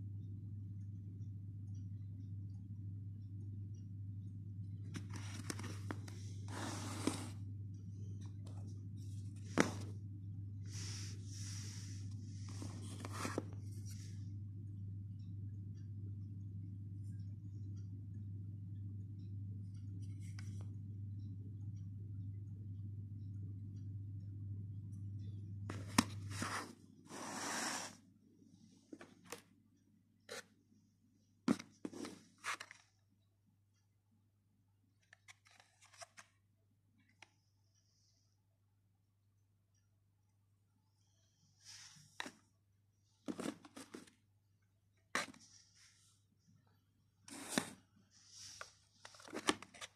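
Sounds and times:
low hum: 0.0 - 31.4.

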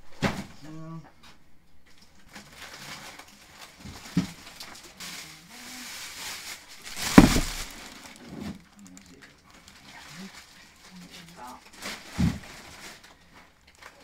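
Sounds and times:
plastic bags rustling: 1.8 - 14.0
heavy thud of load set down: 7.0 - 7.8
knock: 7.1 - 7.6.

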